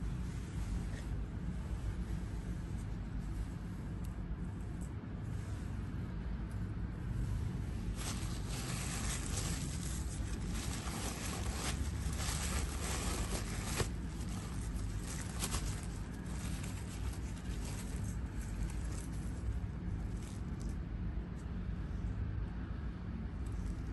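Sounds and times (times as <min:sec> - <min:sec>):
low background rumble: 0:00.0 - 0:23.9
tissue paper rustling: 0:07.8 - 0:20.4.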